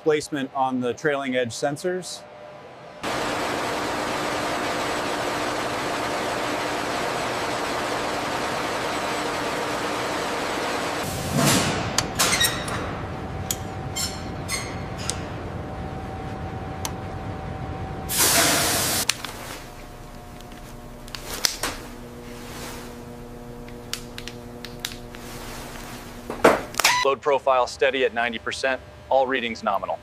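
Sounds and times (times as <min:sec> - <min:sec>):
machine hum: 0:02.2 - 0:30.0
loud pressure hiss: 0:18.1 - 0:19.1.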